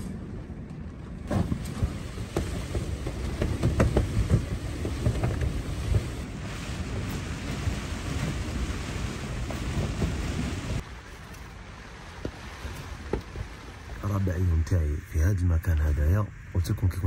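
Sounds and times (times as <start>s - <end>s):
rain beating on a tent: 0.0s - 14.6s
wind: 0.0s - 17.0s
tent fabric flapping: 1.2s - 11.3s.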